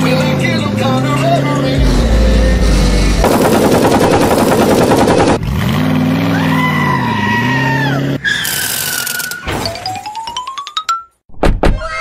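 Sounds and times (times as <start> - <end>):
higher tone: 1.8 - 3.3
rising and falling pitched tone: 1.8 - 5.0
cartoon automatic gunfire: 3.2 - 5.4.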